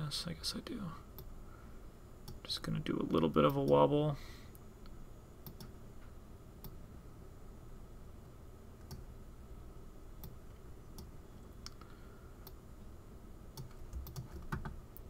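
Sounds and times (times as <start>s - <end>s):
room hum: 0.0s - 15.0s
computer mouse clicks: 5.4s - 5.7s, 13.6s - 15.0s.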